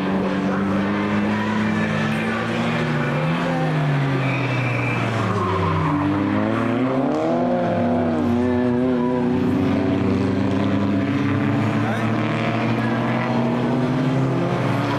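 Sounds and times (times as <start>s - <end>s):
race car engines revving: 0.0s - 14.9s
tyres squealing: 0.4s - 7.0s.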